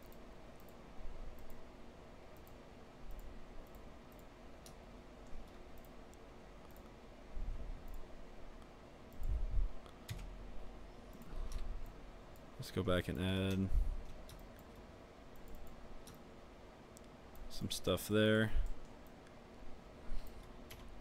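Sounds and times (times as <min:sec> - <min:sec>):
computer mouse clicks: 0:00.0 - 0:01.6, 0:02.4 - 0:07.0, 0:07.8 - 0:08.0, 0:08.6 - 0:10.3, 0:11.1 - 0:12.5, 0:13.4 - 0:16.2
low room hum: 0:00.0 - 0:21.0.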